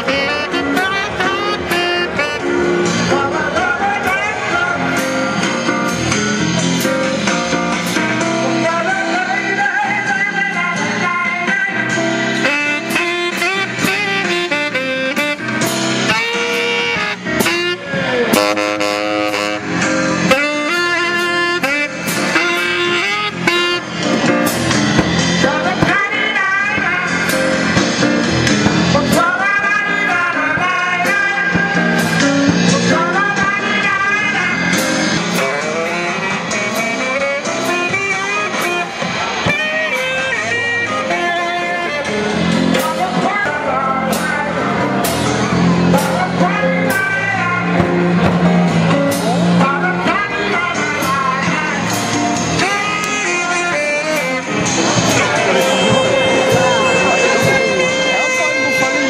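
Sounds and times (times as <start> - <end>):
saxophone melody: 0.0 - 3.2, 12.2 - 25.0, 52.5 - 59.0.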